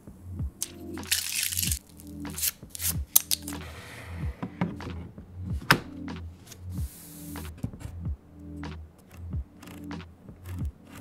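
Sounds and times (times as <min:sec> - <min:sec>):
background music with steady beat: 0:00.0 - 0:11.0
plastic packaging rustling: 0:01.0 - 0:03.5.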